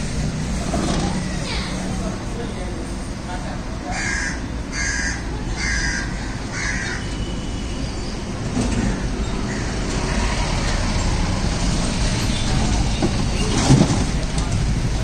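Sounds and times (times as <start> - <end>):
steady background noise: 0.0 - 15.0
crow cawing: 3.9 - 7.1, 8.8 - 10.3.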